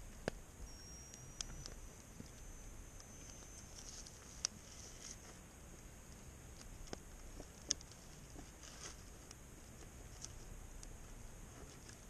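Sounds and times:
campfire crackling: 0.0 - 12.0
sharp pops from burning logs: 6.5 - 7.9.

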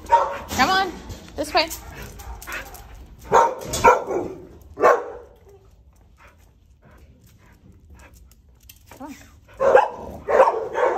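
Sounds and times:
dog barking: 0.0 - 0.5, 2.2 - 5.4, 9.6 - 10.9.

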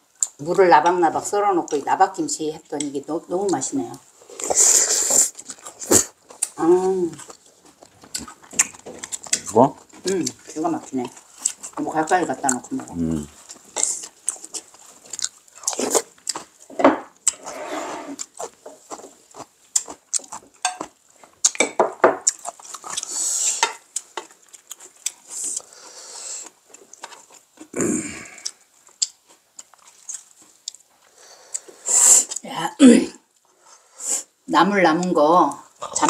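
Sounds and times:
chewing and mouth noises: 2.6 - 17.5, 18.1 - 32.5
utensils scraping metal bowl: 17.4 - 18.2.

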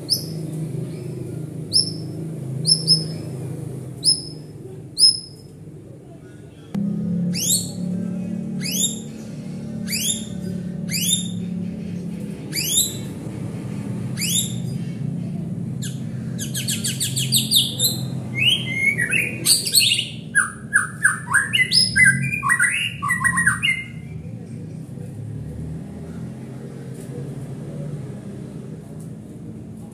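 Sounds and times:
bird singing: 0.0 - 5.5, 7.3 - 13.2, 14.1 - 24.2
steady low hum: 0.0 - 29.9.

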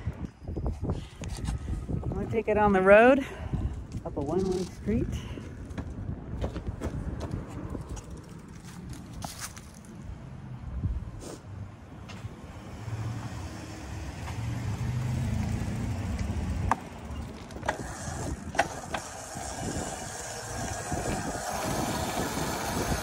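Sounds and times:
scooter wheels rattling on asphalt: 0.9 - 10.0, 15.0 - 23.0
electric scooter motor hum: 12.5 - 23.0.

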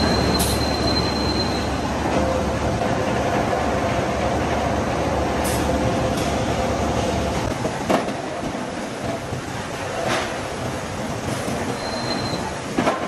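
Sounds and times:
rollers squealing: 0.0 - 2.0, 11.3 - 12.7.

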